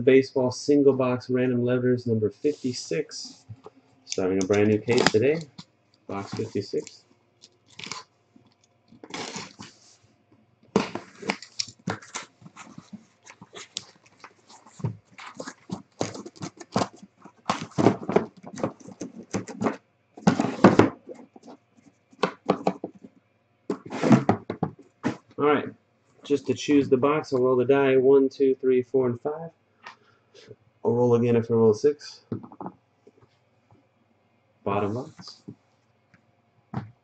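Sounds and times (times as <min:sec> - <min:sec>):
box cutter slitting tape: 0:09.0 - 0:09.7
cardboard flaps scraping: 0:09.0 - 0:10.0, 0:10.8 - 0:21.6, 0:23.7 - 0:25.3
boxes sliding out: 0:20.2 - 0:20.8, 0:23.8 - 0:24.4.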